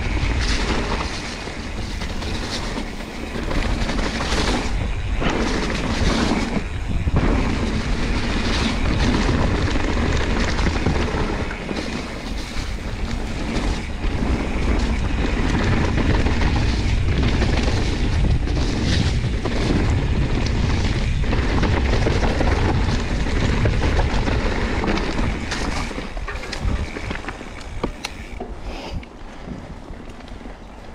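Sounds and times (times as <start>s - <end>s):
bike rattling over bumps: 0.0s - 30.9s
bike tyre rumble: 0.0s - 30.9s
wind rushing over microphone: 0.0s - 30.9s.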